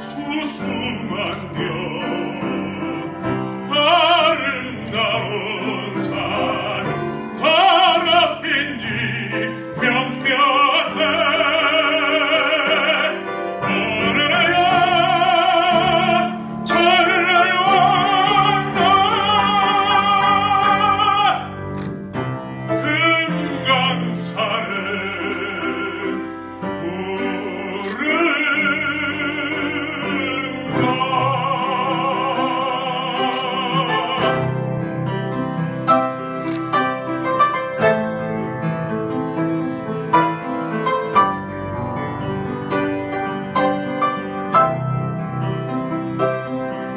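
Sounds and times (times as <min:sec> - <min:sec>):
man singing operatically: 0:00.0 - 0:21.9, 0:22.6 - 0:35.0
piano accompaniment: 0:00.0 - 0:46.9.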